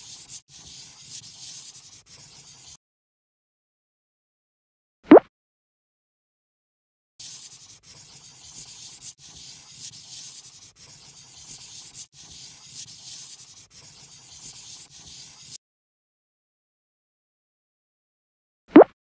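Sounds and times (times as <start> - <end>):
scratchy brush sound effect: 0.0 - 2.8, 7.2 - 15.6.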